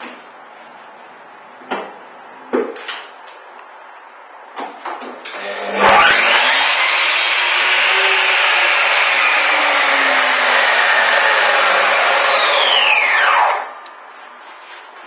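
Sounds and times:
miter saw whine: 5.3s - 13.8s.

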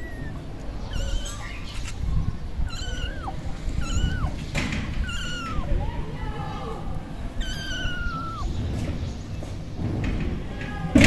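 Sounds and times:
kitten mewing: 0.0s - 8.6s.

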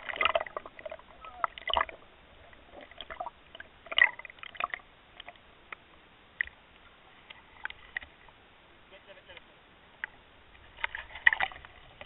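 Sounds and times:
water sloshing: 0.0s - 5.4s, 10.5s - 12.0s.

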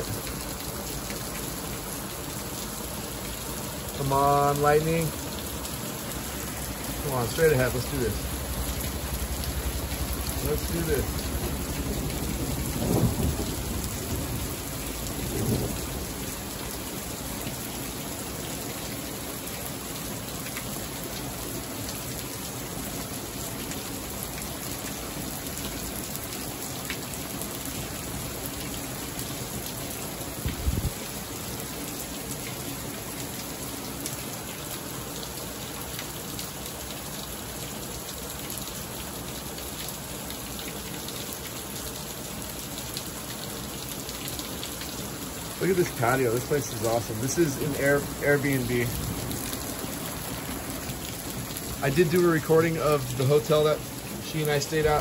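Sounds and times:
heavy rain falling: 0.0s - 55.0s
thunder rumbling: 8.2s - 16.3s.

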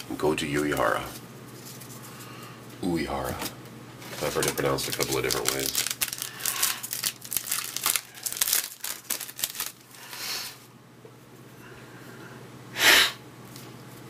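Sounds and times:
cards rustling: 3.3s - 10.3s
card pack wrapper tearing: 4.0s - 9.9s.

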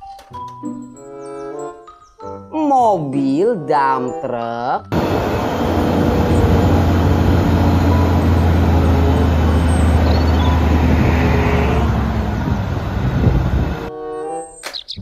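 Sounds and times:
diesel truck engine droning: 4.9s - 13.9s.

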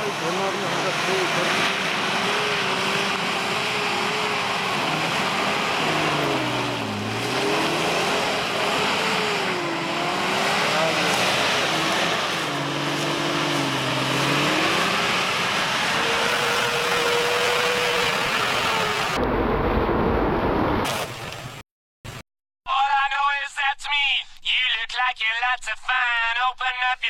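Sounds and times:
car engine under throttle: 0.0s - 20.8s.

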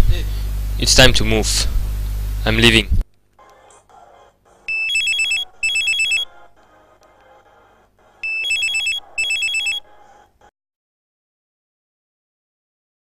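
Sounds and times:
phone ringing with trilling ring: 4.7s - 6.4s, 8.2s - 10.0s.

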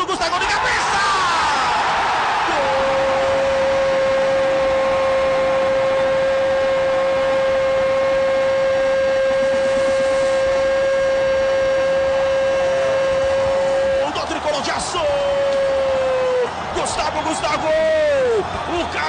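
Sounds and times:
man shouting goal: 0.0s - 4.7s, 13.9s - 19.0s
stadium crowd noise: 0.0s - 19.0s.

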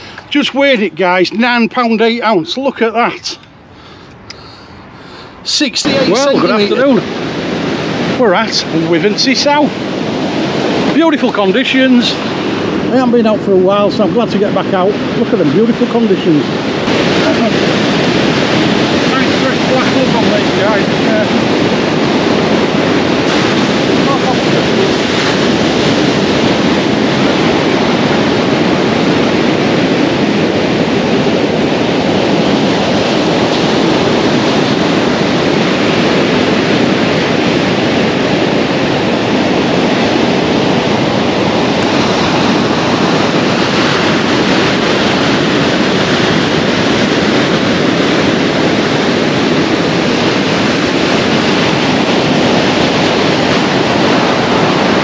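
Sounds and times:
sea surf breaking on beach: 0.0s - 3.2s, 4.8s - 55.0s
wind on microphone: 0.0s - 55.0s.

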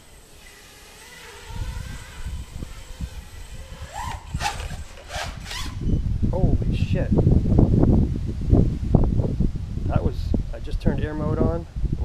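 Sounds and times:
quadcopter motors whining: 0.0s - 6.3s.

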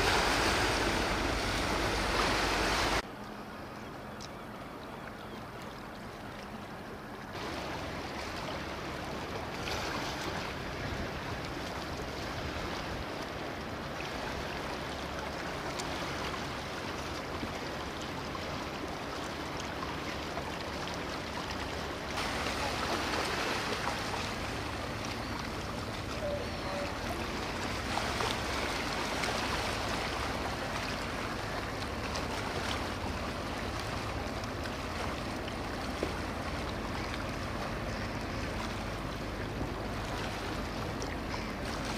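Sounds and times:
water wash: 0.0s - 3.2s, 6.5s - 41.9s
boat engine running: 0.0s - 3.5s, 21.8s - 41.9s.

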